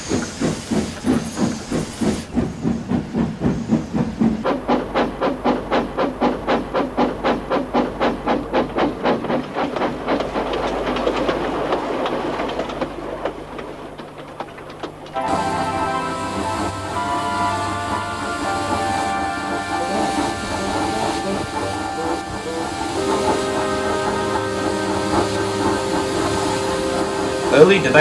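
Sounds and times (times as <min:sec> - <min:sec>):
steam locomotive puffing: 0:00.0 - 0:28.0
music: 0:15.2 - 0:28.0.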